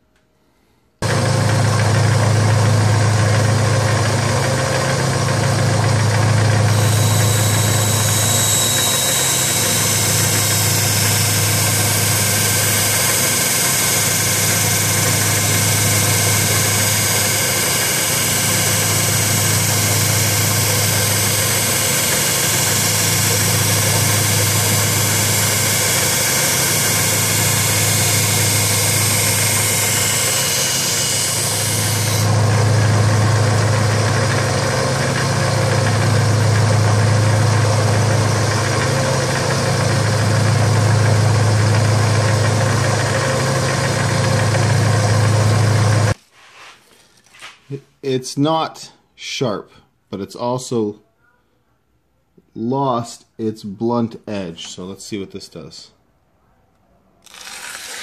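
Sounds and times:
belt sander motor hum: 1.0 - 46.2, 57.2 - 58.0
blade grinding hiss: 6.7 - 32.4.

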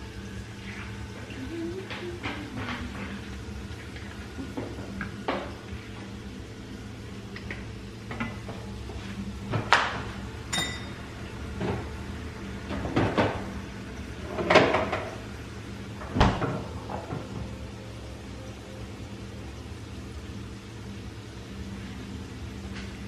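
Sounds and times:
steady low hum: 0.0 - 23.0
ringing clink: 10.5 - 11.0.

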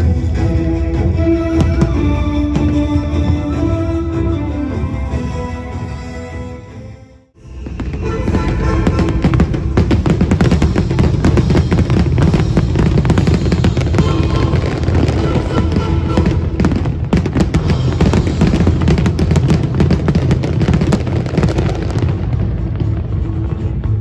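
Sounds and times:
music playing: 0.0 - 24.0
fireworks bursting with bangs and crackles: 7.4 - 24.0.

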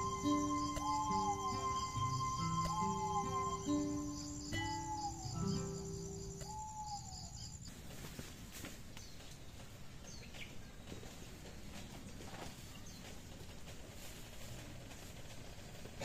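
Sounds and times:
soft slow music: 0.0 - 7.1
faint bird chirps: 0.0 - 7.7
crickets chirping: 0.0 - 16.0
rural daytime ambience: 0.0 - 16.0.

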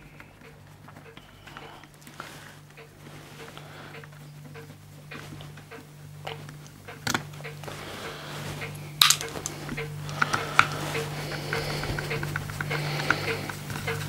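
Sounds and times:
steady low hum: 0.0 - 14.0
small metal parts clicking and clinking: 9.0 - 10.9.

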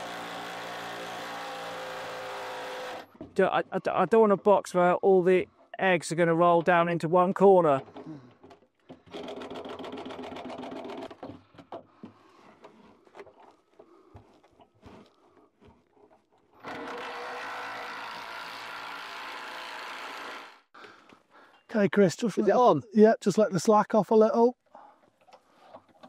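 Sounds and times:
cordless drill running: 0.0 - 3.1, 16.6 - 20.7.

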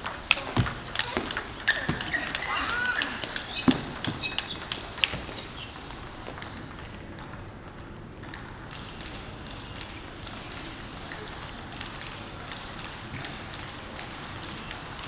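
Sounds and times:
table tennis balls clicking: 0.0 - 15.0.

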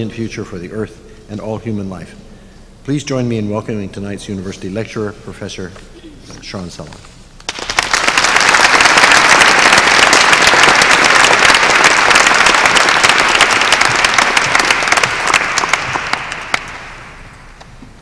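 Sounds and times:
audience applauding: 7.5 - 17.4.

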